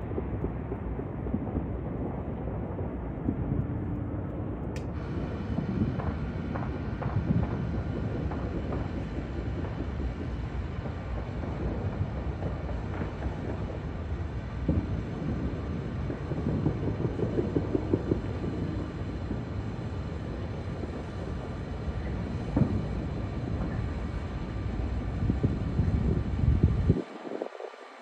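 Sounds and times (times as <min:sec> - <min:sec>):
fireworks rumbling: 0:00.0 - 0:28.0
firework pops: 0:04.7 - 0:27.8
firework bang: 0:04.8 - 0:27.1.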